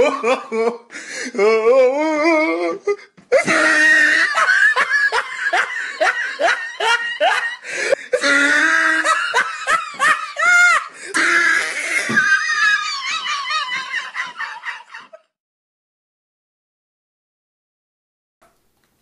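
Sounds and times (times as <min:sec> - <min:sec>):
woman laughing hard: 0:00.0 - 0:00.9, 0:03.3 - 0:15.3.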